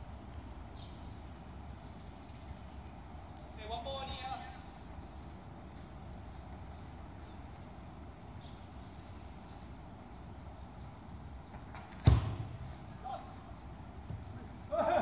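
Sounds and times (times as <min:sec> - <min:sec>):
steady low rumble: 0:00.0 - 0:11.5.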